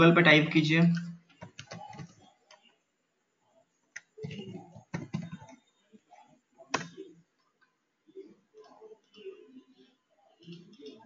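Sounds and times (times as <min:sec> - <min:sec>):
computer keyboard typing: 0:01.3 - 0:02.8, 0:03.9 - 0:05.7, 0:06.6 - 0:07.1.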